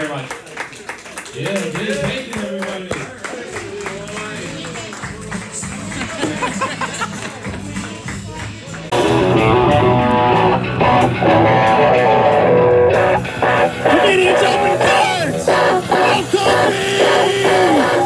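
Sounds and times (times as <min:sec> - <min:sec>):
rock band playing: 0:04.4 - 0:18.0.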